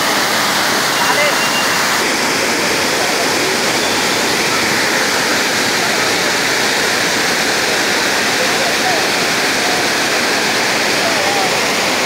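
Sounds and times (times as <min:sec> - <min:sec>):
water rushing over weir: 0:00.0 - 0:12.0.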